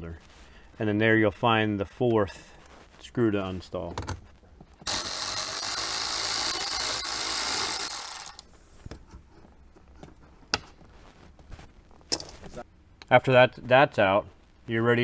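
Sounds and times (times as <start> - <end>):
electric ratchet running: 4.9 - 8.4.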